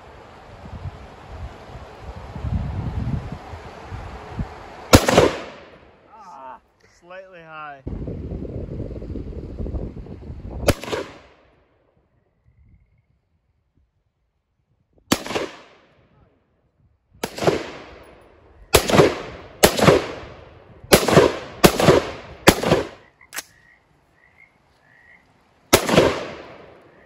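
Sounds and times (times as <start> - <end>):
rifle shots echoing: 4.9 - 5.8, 10.7 - 11.4, 15.1 - 15.9, 17.2 - 23.0, 25.7 - 26.9.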